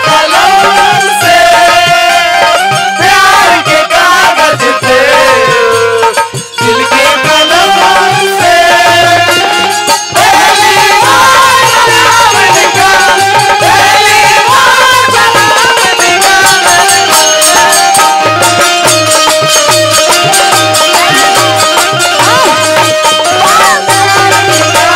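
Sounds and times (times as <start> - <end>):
steady drum beat: 0.0 - 24.9
wavering folk melody: 6.6 - 24.9.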